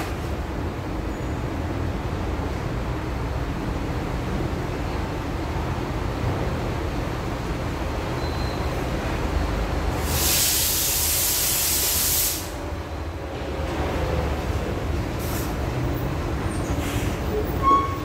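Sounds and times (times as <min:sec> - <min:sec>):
brief squeal: 0:08.2 - 0:08.8, 0:16.6 - 0:18.0
loud hiss: 0:09.9 - 0:12.7.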